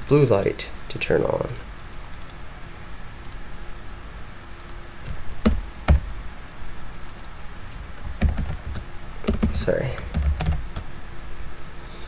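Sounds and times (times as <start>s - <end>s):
keyboard and mouse clicks: 3.2s - 3.4s, 7.1s - 10.8s.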